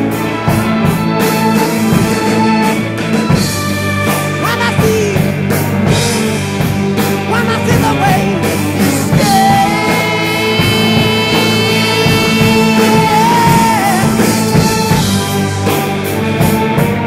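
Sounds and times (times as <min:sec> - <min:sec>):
rock music with singing: 0:00.0 - 0:17.0.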